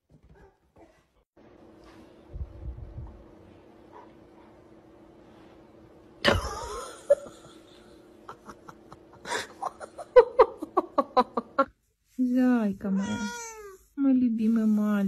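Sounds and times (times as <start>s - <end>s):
person laughing: 6.2s - 11.7s.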